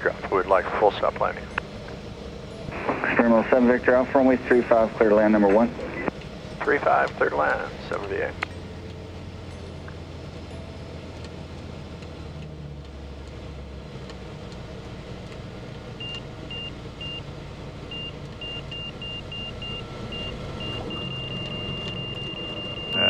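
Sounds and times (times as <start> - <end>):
aircraft engine running: 0.0 - 23.0
high warning beep: 17.9 - 23.0.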